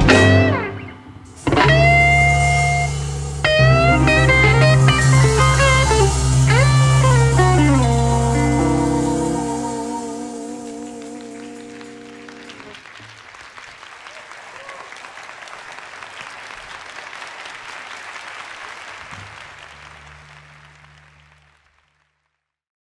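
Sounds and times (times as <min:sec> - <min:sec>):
blues band final chord: 0:00.0 - 0:12.9, 0:19.1 - 0:21.6
low hum: 0:01.4 - 0:12.7, 0:19.5 - 0:21.6
audience applause: 0:04.4 - 0:22.4.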